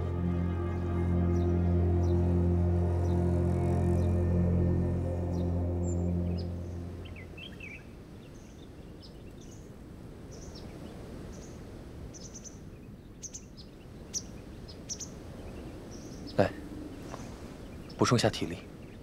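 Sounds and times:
birds chirping: 0.0s - 8.5s
steady low hiss: 0.0s - 9.1s.

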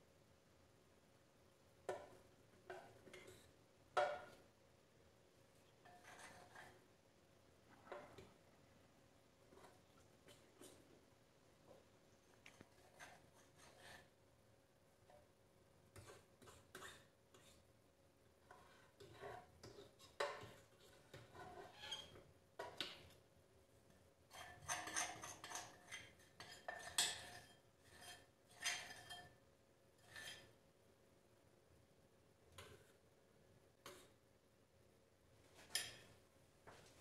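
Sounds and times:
spoon scraping glass bowl: 5.8s - 6.8s, 12.7s - 14.2s, 16.0s - 17.7s, 18.5s - 22.2s, 24.3s - 29.4s, 30.0s - 30.6s.

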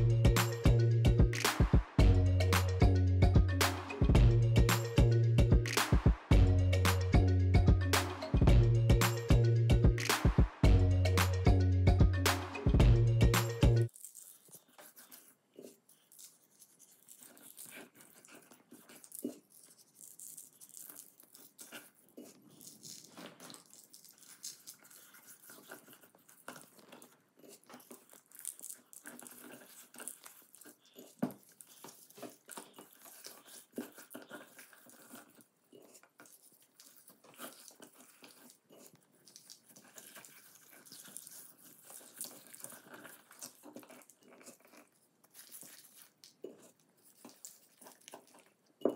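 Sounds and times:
hands rubbing salt rustling: 13.4s - 44.6s.

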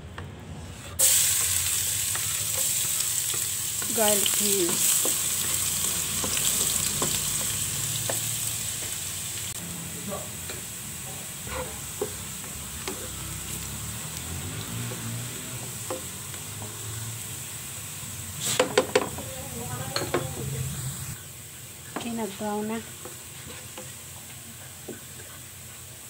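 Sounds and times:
garlic sizzling in oil: 1.0s - 26.0s
spatula tapping and scraping pan: 2.1s - 9.0s, 10.4s - 13.3s, 14.9s - 16.8s, 18.5s - 20.4s, 23.0s - 25.4s.

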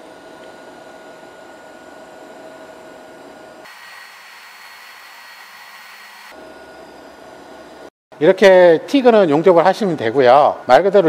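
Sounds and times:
welding arc hissing: 3.6s - 6.4s.

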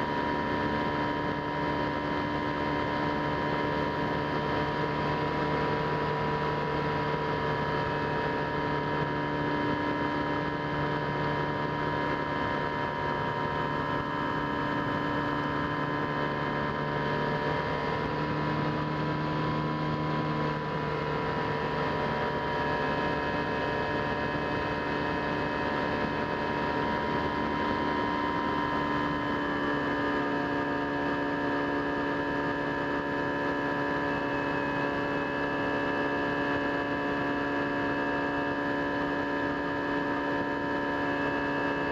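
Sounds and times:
electric motor and propeller humming: 0.0s - 41.9s.

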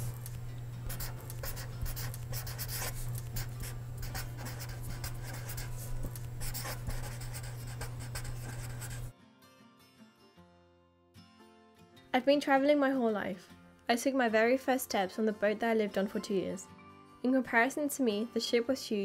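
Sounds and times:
steady low hum: 0.0s - 9.1s
pen scratching on paper: 0.9s - 9.1s.

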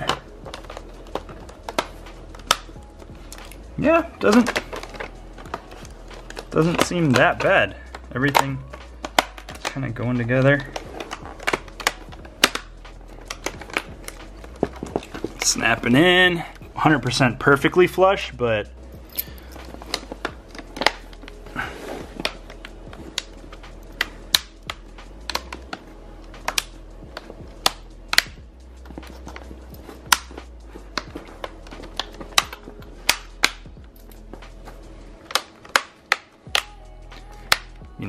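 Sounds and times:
plastic clips snapping into place: 8.2s - 9.8s, 24.0s - 28.4s, 30.1s - 33.7s, 35.2s - 37.8s.

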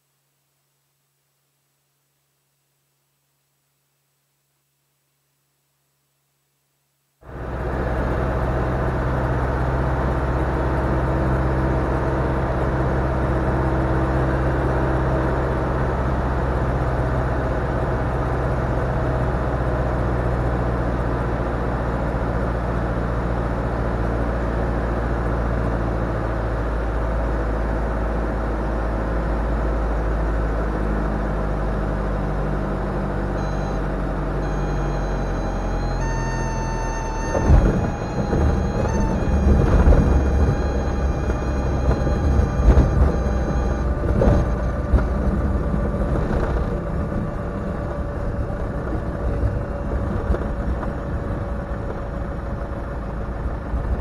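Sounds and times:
aircraft engine and propeller drone: 33.4s - 54.0s.

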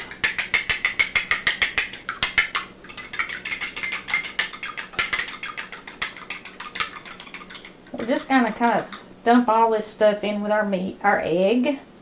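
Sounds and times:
fork clinking on glass bowl: 0.0s - 9.0s.

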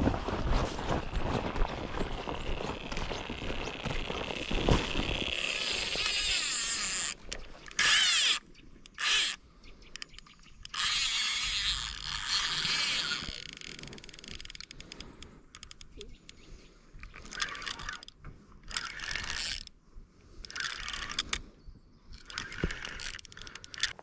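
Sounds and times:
fishing reel whirring: 2.3s - 9.4s, 10.6s - 15.8s, 17.1s - 19.7s, 20.4s - 21.4s, 22.2s - 24.0s.

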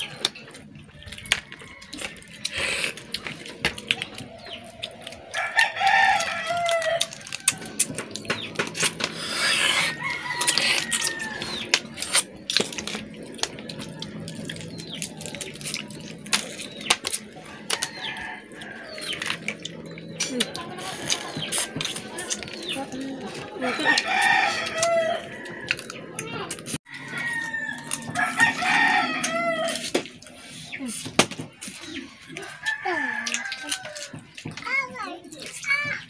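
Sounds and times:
crab shells cracking: 0.0s - 23.2s, 32.6s - 34.4s
rooster crowing: 5.3s - 7.9s, 9.4s - 11.7s, 17.5s - 19.3s, 23.6s - 26.3s, 26.9s - 29.9s, 32.3s - 34.3s.

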